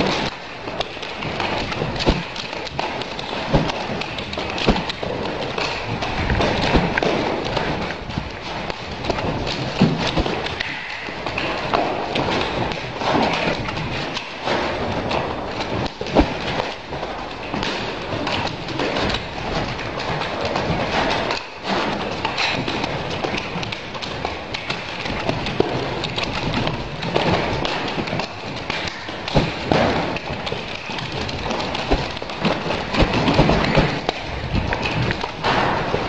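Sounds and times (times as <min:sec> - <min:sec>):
nunchaku swishing: 0:01.2 - 0:15.1.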